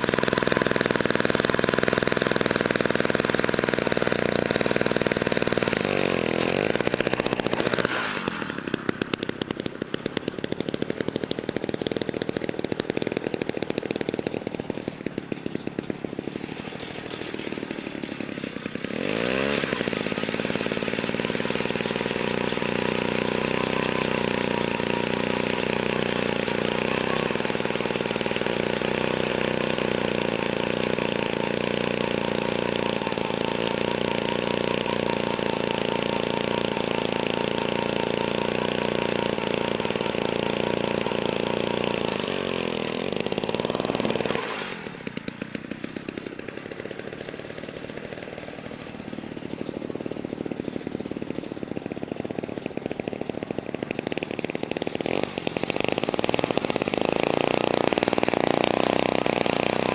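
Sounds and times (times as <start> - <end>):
small two-stroke engine revving: 0.0 - 59.9.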